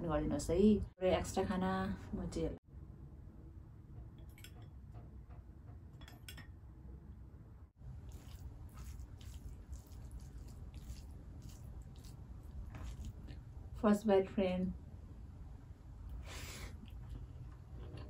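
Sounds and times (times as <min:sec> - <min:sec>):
fingers squishing rice: 0:07.9 - 0:13.5.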